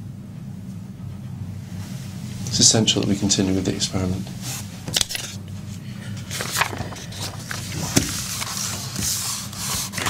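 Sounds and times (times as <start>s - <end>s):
steady low hum: 0.0s - 10.0s
paper rustling and shuffling: 4.4s - 10.0s.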